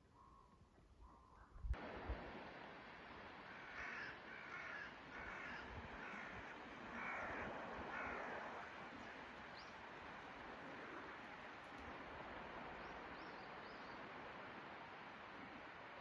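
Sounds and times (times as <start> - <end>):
steady background hiss: 0.0 - 16.0
crow cawing: 3.5 - 8.8.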